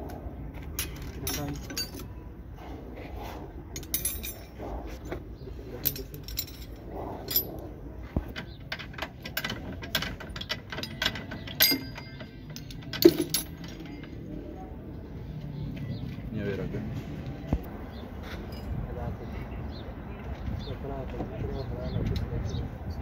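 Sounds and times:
metal tools clinking: 0:00.6 - 0:02.3, 0:03.7 - 0:14.6, 0:18.4 - 0:18.8
tools knocking: 0:08.1 - 0:14.2.

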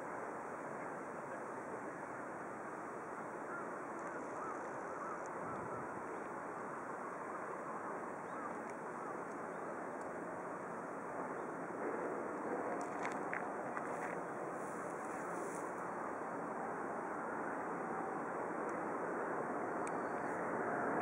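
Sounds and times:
wind in the grass: 0:02.4 - 0:21.0
wind on the microphone: 0:05.4 - 0:06.0.

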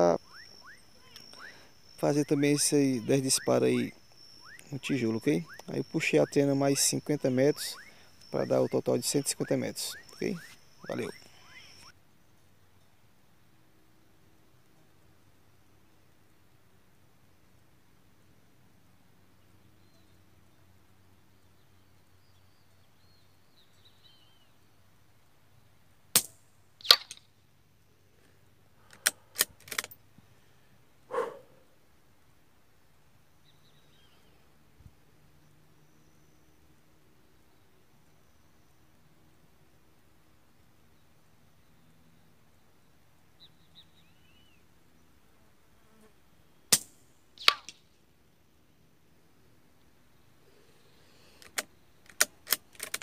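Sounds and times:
sharp crack with ringing: 0:26.2 - 0:27.3, 0:46.7 - 0:47.9
metallic clicks: 0:28.9 - 0:30.0, 0:51.4 - 0:53.0.

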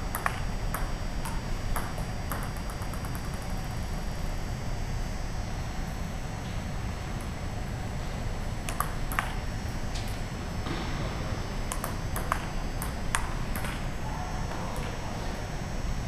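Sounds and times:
steady low hum: 0:00.0 - 0:16.0
ball bouncing on table: 0:00.1 - 0:03.5, 0:08.7 - 0:09.4, 0:11.7 - 0:13.8
ping-pong ball clicking off paddles: 0:00.1 - 0:03.7, 0:08.7 - 0:09.4, 0:11.7 - 0:13.9.

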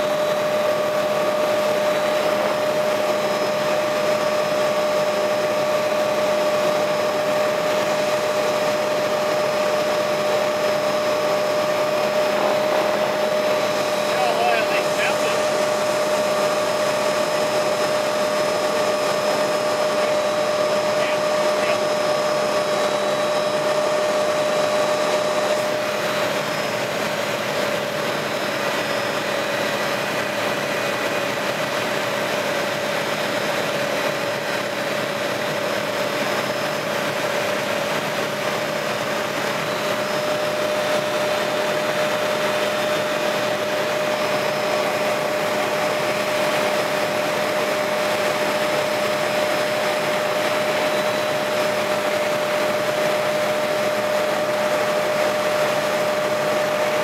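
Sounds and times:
helicopter engine and rotor noise: 0:00.0 - 0:57.0.

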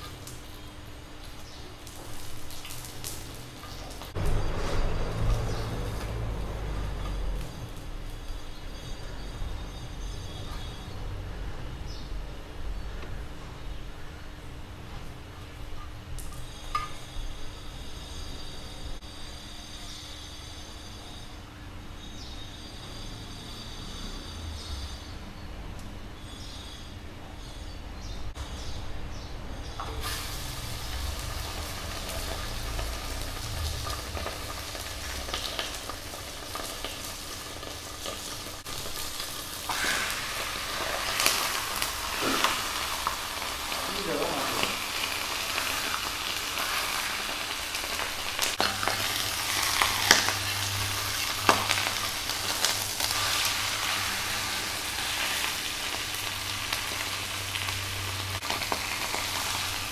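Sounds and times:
meat sizzling on a grill: 0:00.0 - 0:09.0, 0:29.9 - 0:59.9.

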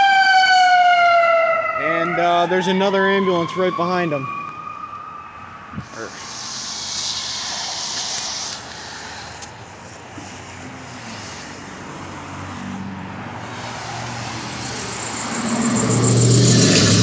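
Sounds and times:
traffic on slushy road: 0:05.8 - 0:17.0
vehicle engine hum: 0:05.8 - 0:17.0.

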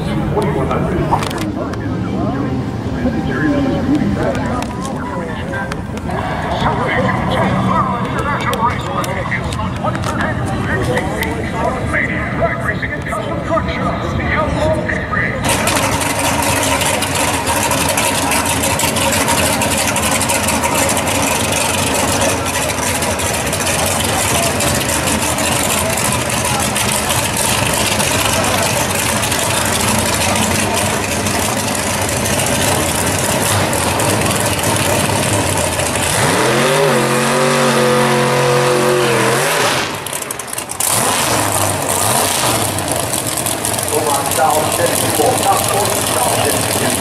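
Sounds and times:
car engine roaring at high revs: 0:14.8 - 0:47.0.

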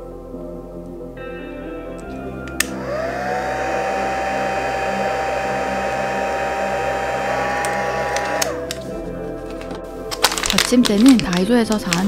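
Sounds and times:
heat gun fan whine: 0:02.8 - 0:08.8
heat gun switch click: 0:07.6 - 0:08.8.

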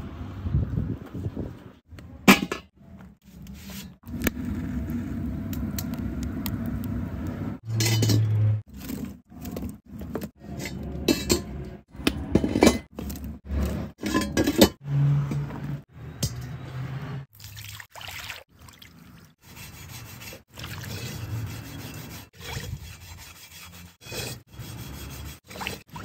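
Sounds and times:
firewood knocking and scraping: 0:02.3 - 0:14.6
wood fire crackling in a stove: 0:04.0 - 0:07.6.

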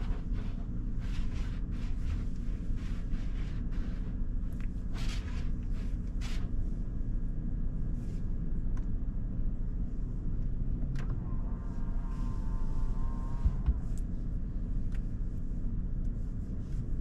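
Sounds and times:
car wash low rumble: 0:00.0 - 0:17.0.

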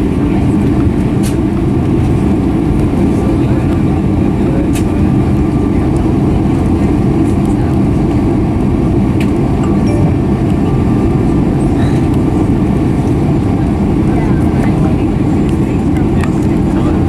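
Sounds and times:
jet engines taxiing rumble: 0:00.0 - 0:17.0.

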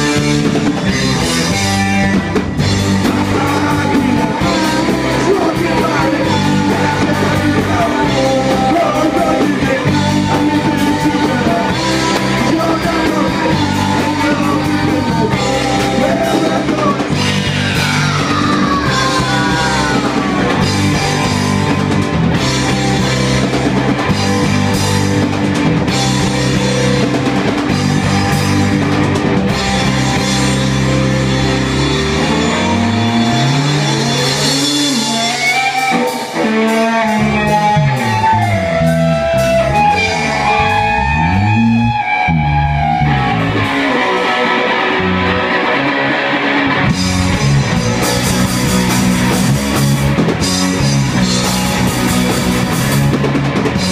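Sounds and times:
punk rock band playing: 0:00.0 - 0:53.9
guitar sliding bending notes: 0:13.4 - 0:53.9.

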